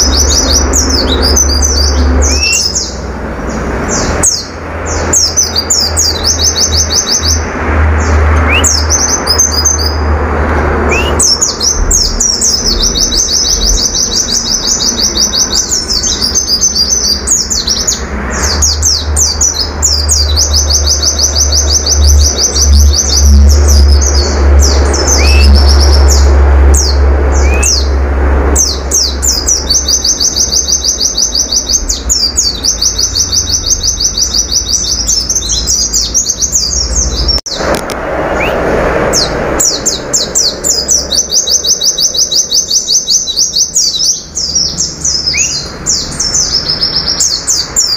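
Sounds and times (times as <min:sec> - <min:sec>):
bird trilling song: 0:00.0 - 0:10.2, 0:10.8 - 0:47.9
bird rising whistled notes: 0:10.9 - 0:13.9.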